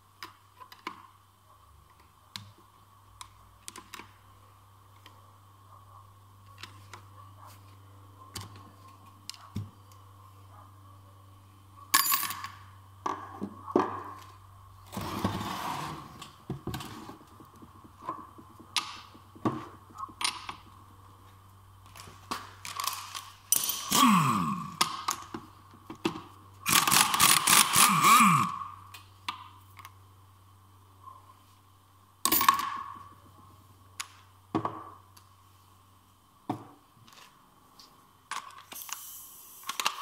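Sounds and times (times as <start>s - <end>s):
metal tools clinking and scraping: 22.6s - 24.0s.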